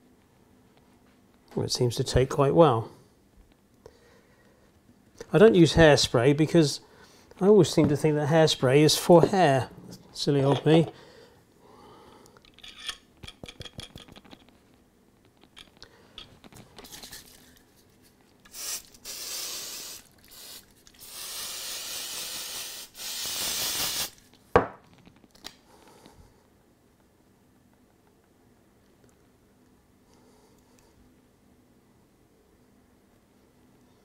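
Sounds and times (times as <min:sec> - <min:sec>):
aerosol can hissing: 0:18.5 - 0:24.2.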